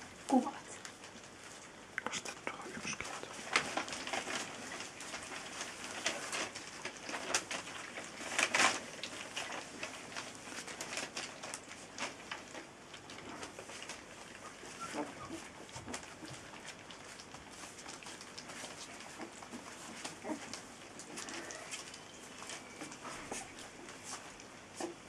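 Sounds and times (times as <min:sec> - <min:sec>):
puppies crunching dry kibble: 0:00.0 - 0:25.0
puppy grunts and whimpers: 0:13.4 - 0:25.0.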